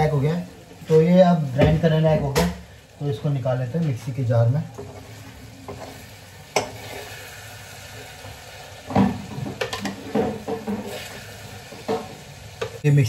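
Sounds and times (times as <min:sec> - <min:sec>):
masala sizzling in a pan: 0:00.0 - 0:13.0
spoon scraping a pan: 0:04.7 - 0:07.3, 0:08.9 - 0:12.8.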